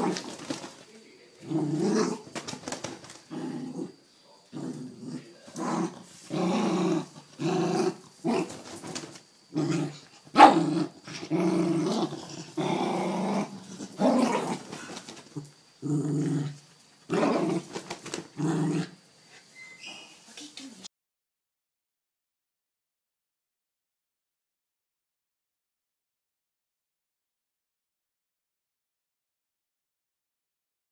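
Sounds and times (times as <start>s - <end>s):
dog play-growling: 0.0s - 19.5s.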